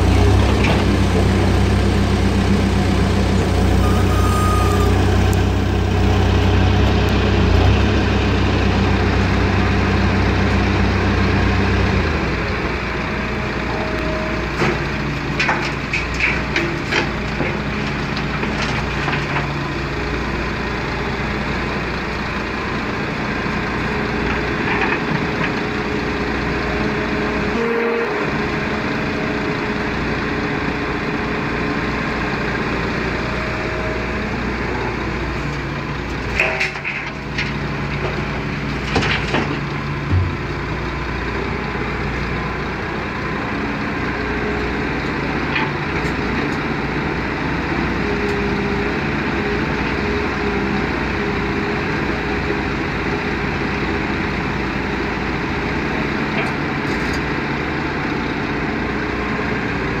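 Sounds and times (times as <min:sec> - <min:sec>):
excavator diesel engine running: 0:00.0 - 1:00.0
earth and stones clunking: 0:14.5 - 0:19.6, 0:36.1 - 0:40.8.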